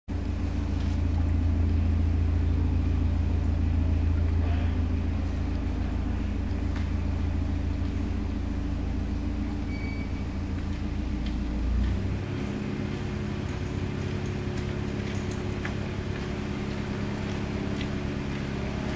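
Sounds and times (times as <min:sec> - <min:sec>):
diesel boat engine humming: 0:00.1 - 0:18.9.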